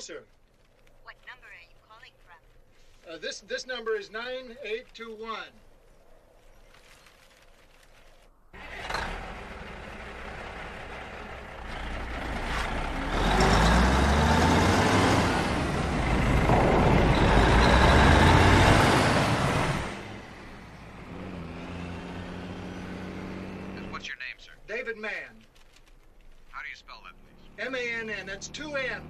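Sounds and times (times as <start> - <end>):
truck diesel engine running hard: 8.6 - 24.0.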